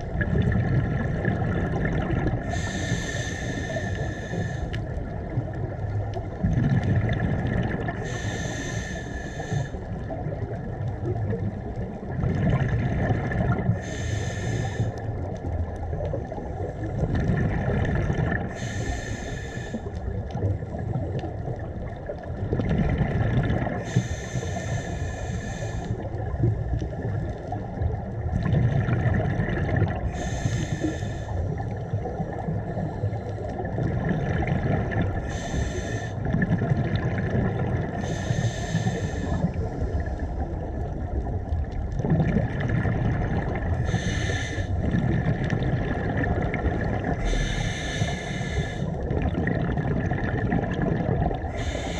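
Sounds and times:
exhale bubbling rumble: 0.0s - 51.9s
regulator inhale hiss: 2.4s - 5.1s, 7.9s - 10.2s, 13.7s - 15.3s, 18.5s - 20.1s, 23.8s - 26.1s, 30.0s - 31.7s, 35.2s - 36.3s, 37.9s - 40.3s, 43.8s - 44.9s, 47.1s - 49.1s, 51.4s - 51.9s.

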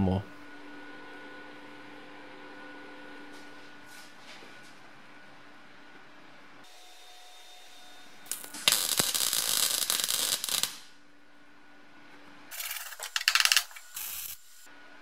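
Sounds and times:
welder crackling: 8.3s - 10.9s, 12.6s - 14.4s.

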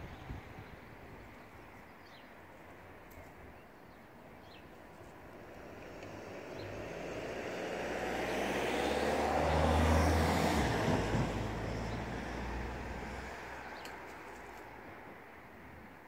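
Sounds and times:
vehicle driving past: 5.5s - 13.8s.

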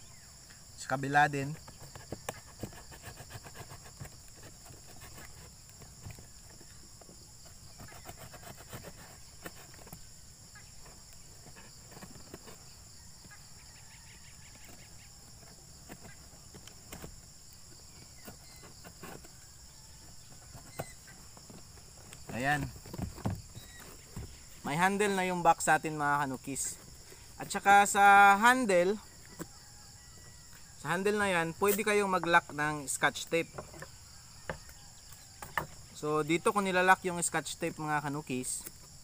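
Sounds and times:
knife cutting cardboard: 1.4s - 13.6s, 14.2s - 24.6s.

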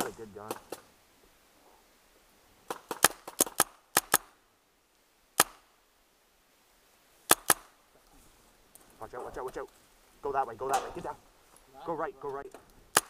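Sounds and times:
paintball markers firing: 2.7s - 4.3s, 5.4s - 5.7s, 7.3s - 7.7s.

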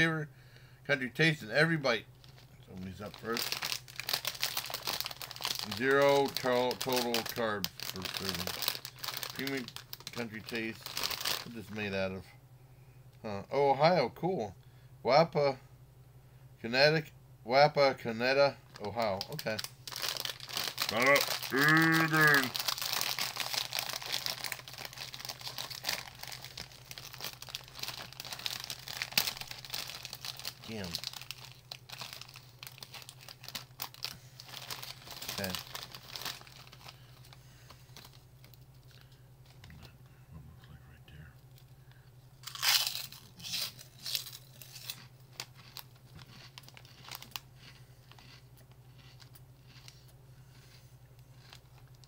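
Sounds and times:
steady low hum: 0.0s - 52.0s
plastic snack bag crinkling: 2.2s - 11.9s, 18.6s - 39.9s, 42.4s - 52.0s
pork rinds crunching while chewed: 3.0s - 11.5s, 18.8s - 37.0s, 42.4s - 52.0s.

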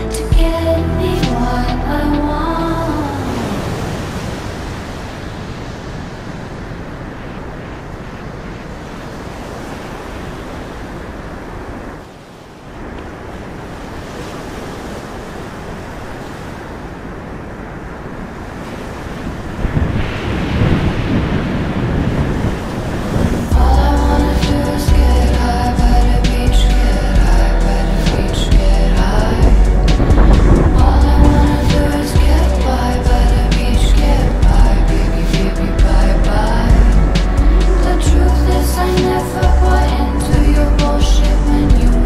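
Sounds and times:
sea surf washing on shore: 0.0s - 42.0s
wind buffeting microphone: 1.3s - 42.0s.

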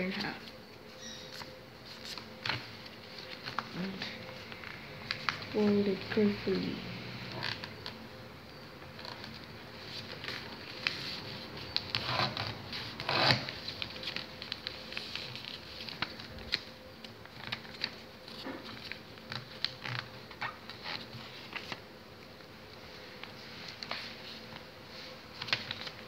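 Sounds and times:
paper being folded and creased: 0.0s - 6.6s, 7.2s - 8.0s, 8.9s - 26.0s.

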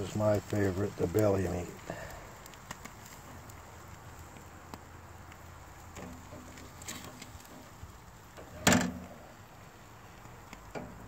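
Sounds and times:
spatula scraping a grill grate: 5.9s - 9.1s.

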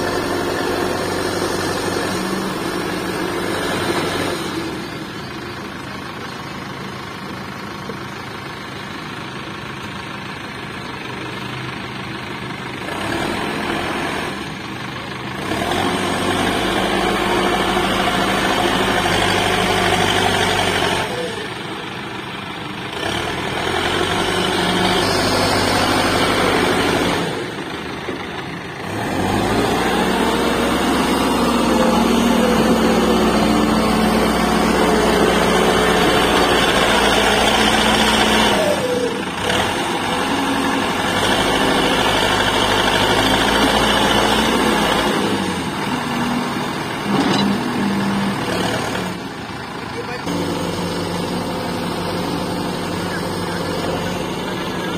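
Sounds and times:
backhoe diesel engine under load: 0.0s - 54.9s.

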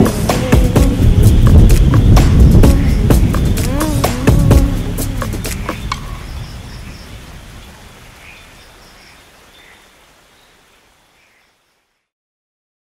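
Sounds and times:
steady rain hiss: 0.0s - 12.1s
faint chirps: 5.1s - 12.1s.

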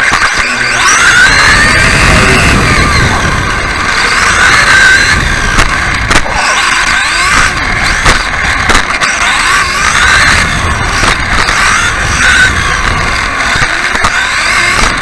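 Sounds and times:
toy car motor whining: 0.0s - 15.0s
chassis knocks: 3.1s - 9.0s.

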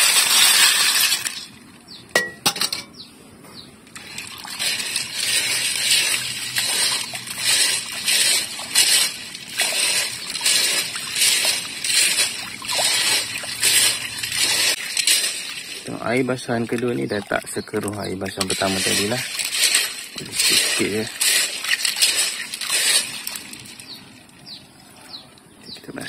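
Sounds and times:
water sloshing: 3.8s - 25.6s
snail shells clinking: 3.9s - 24.6s.

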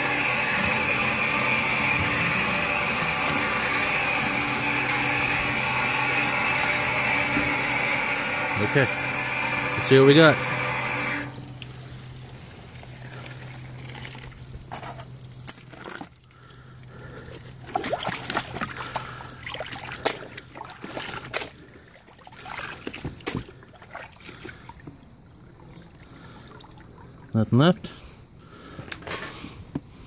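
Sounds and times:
low steady hum: 0.0s - 19.9s
water splashes: 11.3s - 15.5s, 17.6s - 27.4s
muddy water sloshing in a tub: 11.3s - 27.9s.

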